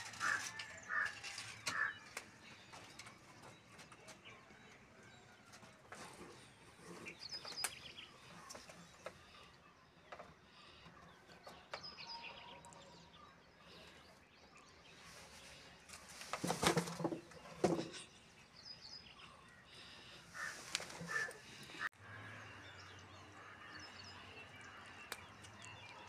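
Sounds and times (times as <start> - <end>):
small birds chirping: 0.0 - 26.0
cardboard rustling and scraping: 16.0 - 18.0.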